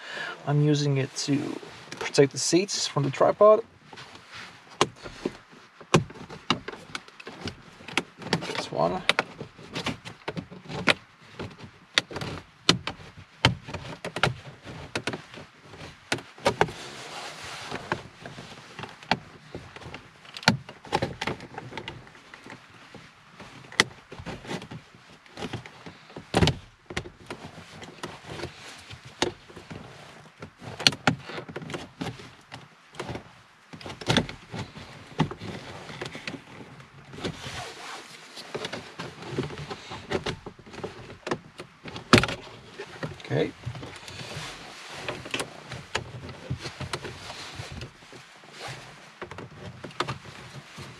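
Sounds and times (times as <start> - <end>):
plastic trim panel clicking and creaking: 30.3 - 37.4, 38.5 - 44.3.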